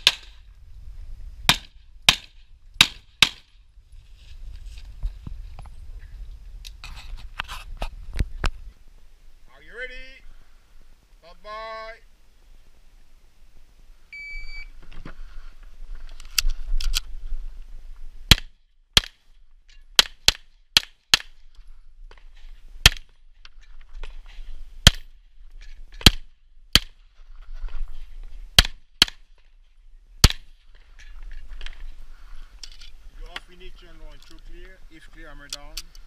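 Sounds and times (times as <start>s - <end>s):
shot timer beep: 14.2s - 14.7s.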